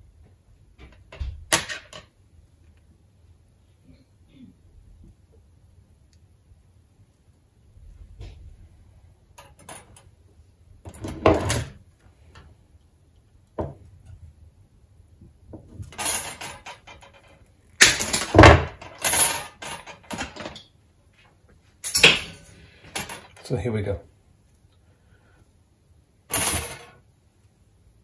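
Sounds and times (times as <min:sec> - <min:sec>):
wire clacking and rattling: 0:15.5 - 0:20.7.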